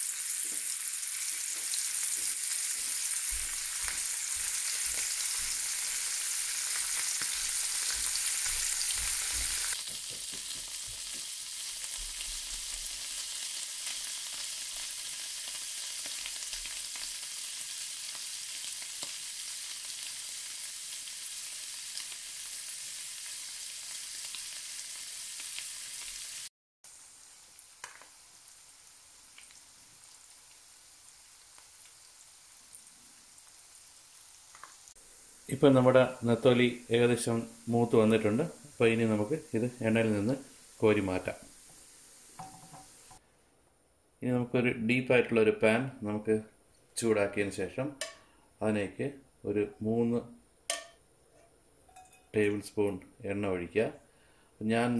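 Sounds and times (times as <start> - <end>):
fish sizzling in hot oil: 0.0 - 43.2.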